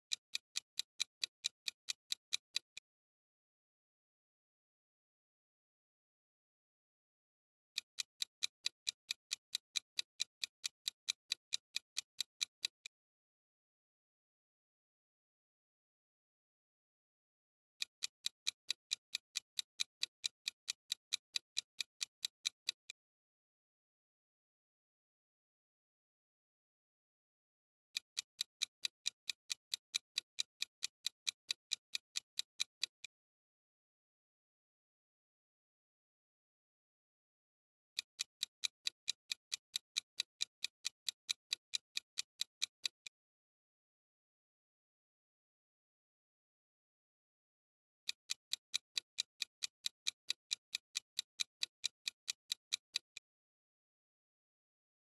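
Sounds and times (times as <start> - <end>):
fast clock ticks: 0.0 - 2.8, 7.8 - 12.9, 17.8 - 23.0, 27.9 - 33.3, 38.0 - 43.2, 48.0 - 53.5.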